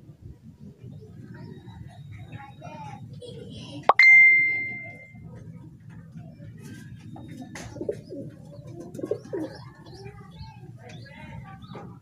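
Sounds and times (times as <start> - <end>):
pigeons cooing: 0.0 - 3.5, 6.2 - 12.0.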